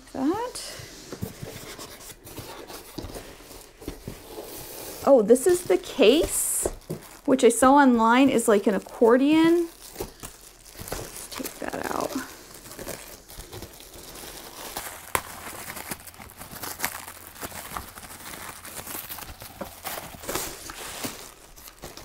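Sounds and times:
plastic bag crinkling: 5.0 - 22.0.

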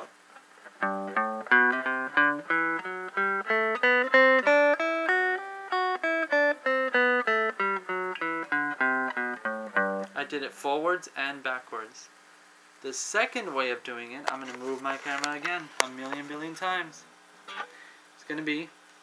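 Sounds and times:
guitar playing a scale: 0.0 - 10.6, 14.5 - 17.8.

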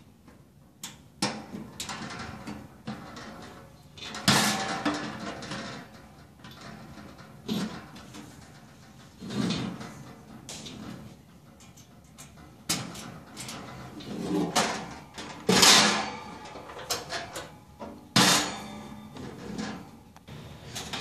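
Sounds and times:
metal grill lid clanking: 12.2 - 20.0.

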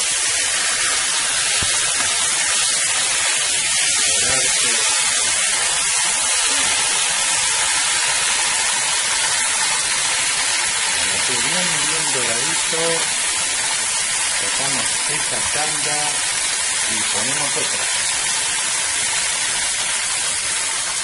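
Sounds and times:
chicken sizzling in hot oil: 0.0 - 21.0.

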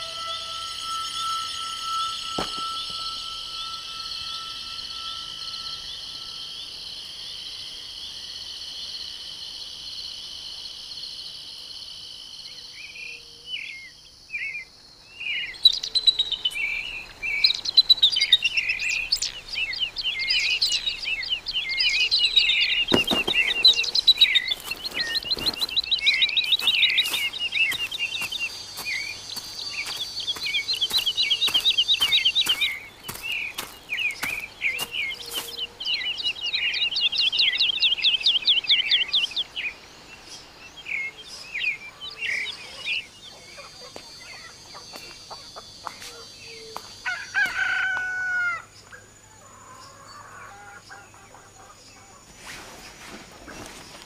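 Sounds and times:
rooster crowing: 0.0 - 6.5, 47.0 - 48.7
birds trilling and chirping: 0.0 - 54.0.

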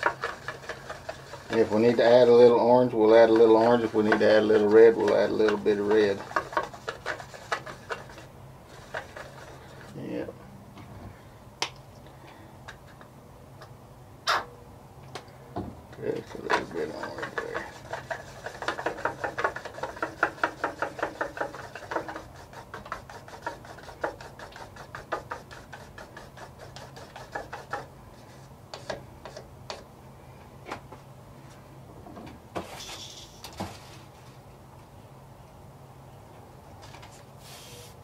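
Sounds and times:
stick stirring paint in cup: 0.0 - 10.1, 16.0 - 29.9
short hiss: 32.6 - 33.8, 37.4 - 38.0.

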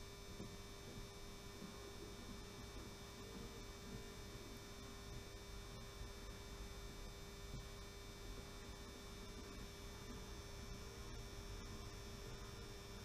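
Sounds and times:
faint power controller hum: 0.0 - 13.0.

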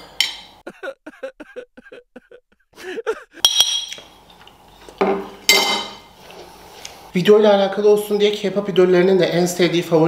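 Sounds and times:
metal spoon clinking on plate: 3.4 - 4.1.

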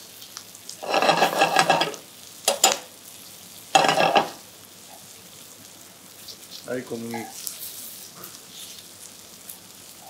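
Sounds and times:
meat sizzling in a frying pan: 0.0 - 10.0
utensil scraping pan: 0.8 - 2.8, 3.8 - 4.4.

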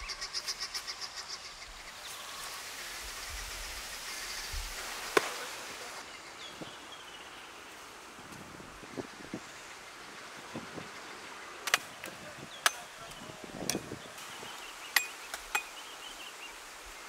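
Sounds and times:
light outdoor rustle: 0.0 - 17.0
machete chopping coconut husk: 5.1 - 5.4.

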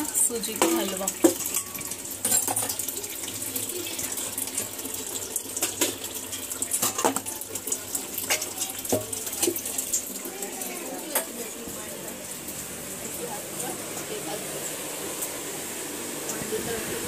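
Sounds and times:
water running from tap: 0.0 - 17.0.

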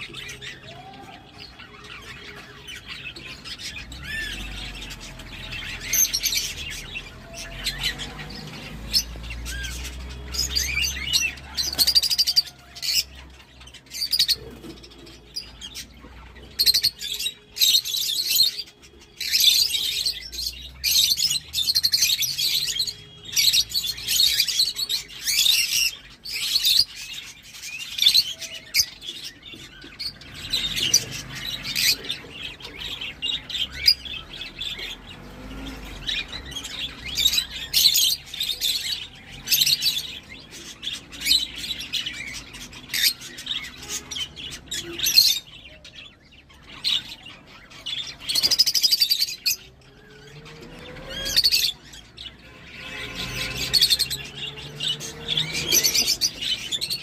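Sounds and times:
lovebirds chirping: 0.0 - 57.0.

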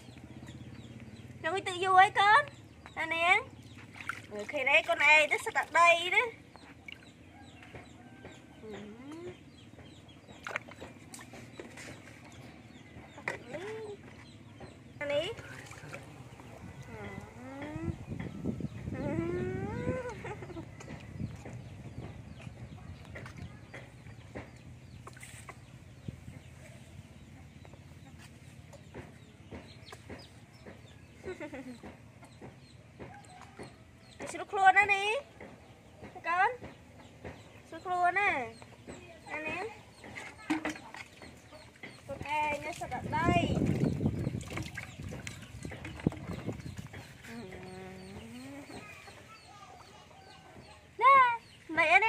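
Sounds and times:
water sloshing in plastic tub: 0.0 - 52.0
light water splashing: 3.5 - 7.8, 10.3 - 16.9, 40.0 - 47.7
chickens clucking and peeping: 6.4 - 52.0
chickens clucking: 35.4 - 51.6.

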